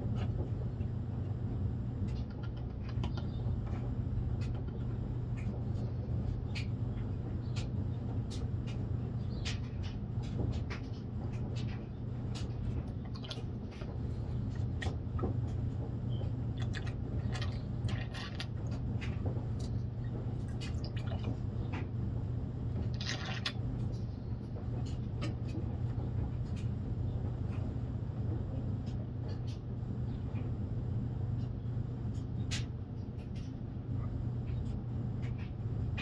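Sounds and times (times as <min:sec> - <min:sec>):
steady low hum: 0:00.0 - 0:36.0
squeeze bottle squirting: 0:22.9 - 0:23.6.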